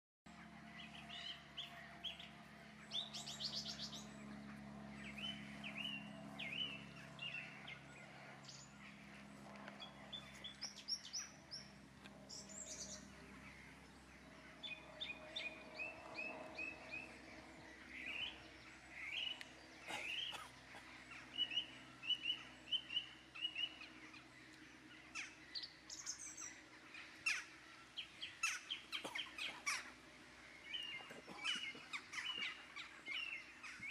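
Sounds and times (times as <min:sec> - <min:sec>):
wild birds chirping: 0:00.3 - 0:33.9
high bird trills: 0:17.8 - 0:24.3, 0:25.0 - 0:30.0, 0:30.6 - 0:33.9.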